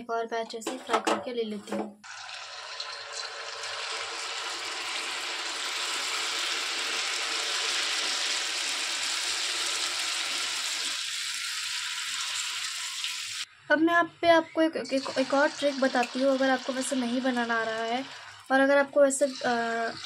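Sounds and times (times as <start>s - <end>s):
batter deep-frying in oil: 2.0s - 13.5s, 14.8s - 20.0s.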